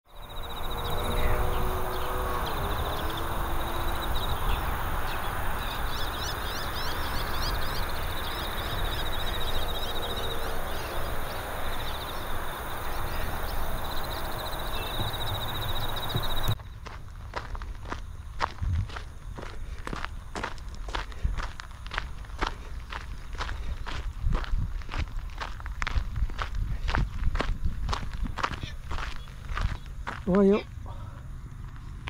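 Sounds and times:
birds trilling and calling: 0.1s - 16.6s, 28.3s - 31.9s
outdoor background hiss and rumble: 0.1s - 32.0s.

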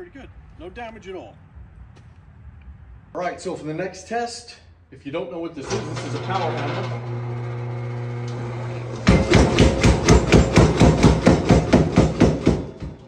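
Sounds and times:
power hammer humming: 5.6s - 13.0s
hammer ram pounding wood: 9.0s - 13.0s.

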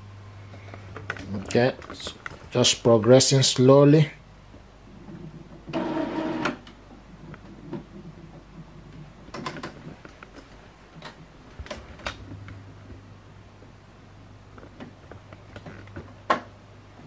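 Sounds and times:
low steady hum: 0.0s - 17.0s
printer motor whir: 5.7s - 6.6s.

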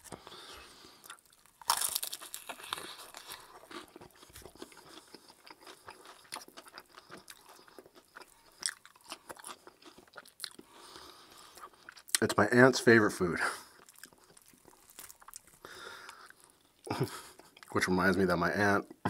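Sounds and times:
crispy fried chicken crunching: 0.0s - 12.4s, 13.6s - 17.8s.

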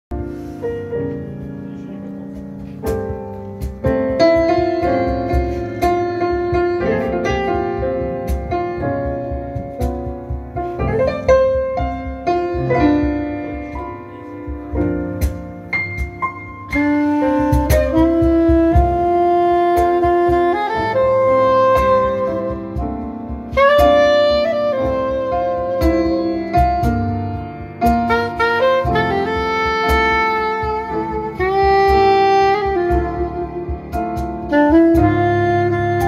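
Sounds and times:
solo grand piano: 0.1s - 36.0s.

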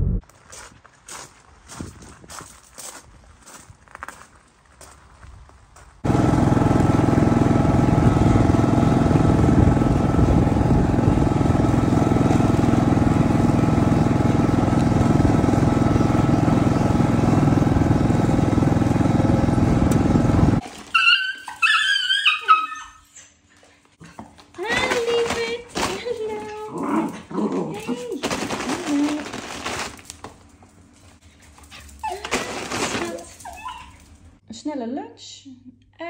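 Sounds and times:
vehicle engine running: 6.0s - 20.6s
dog whimpering: 21.0s - 23.5s, 32.0s - 34.1s.

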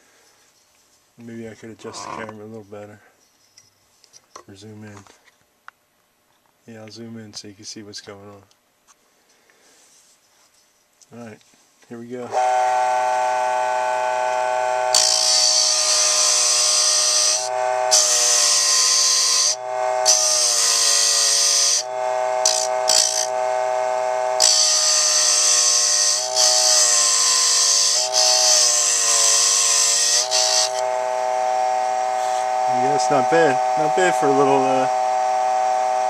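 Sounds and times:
small electric motor whine: 12.3s - 36.0s
chisel scraping spinning wood: 14.9s - 35.0s.

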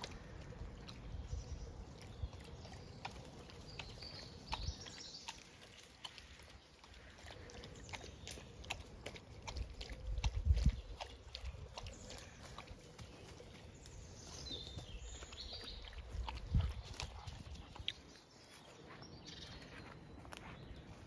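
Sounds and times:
footsteps on dry leaves and twigs: 18.4s - 21.0s.

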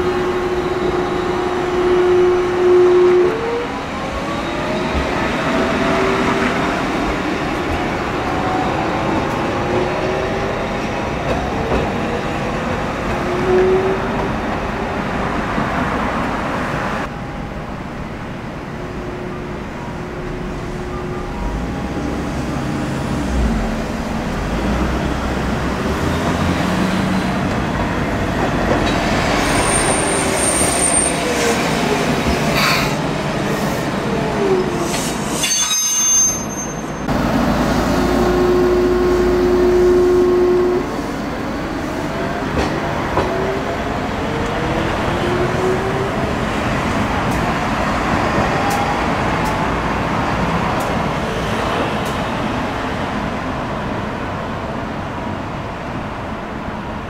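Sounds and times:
high wheel squeal: 34.8s - 37.1s.

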